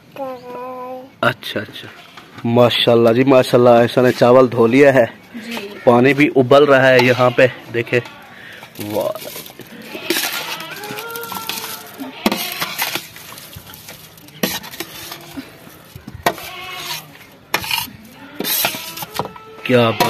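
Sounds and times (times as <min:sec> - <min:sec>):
ladle scraping steel bowl: 0:09.1 - 0:15.5, 0:16.2 - 0:20.0.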